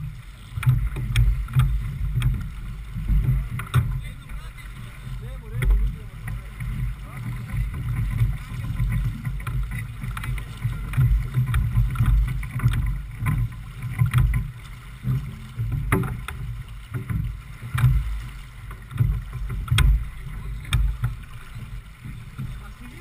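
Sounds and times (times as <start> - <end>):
water washing along hull: 0.0 - 23.0
short knocks and clicks: 0.6 - 4.0, 7.4 - 14.5, 15.1 - 22.6.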